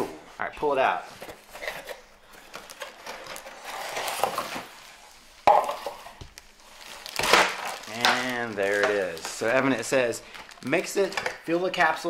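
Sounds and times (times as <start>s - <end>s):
plastic bags rustling: 1.1s - 12.0s
cardboard scraping: 2.8s - 4.9s.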